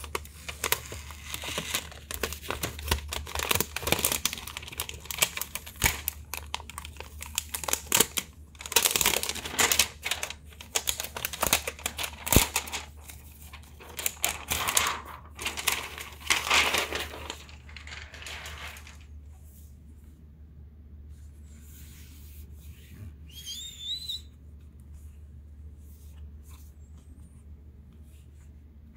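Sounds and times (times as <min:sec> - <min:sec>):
plastic film rustling: 0:00.0 - 0:19.2.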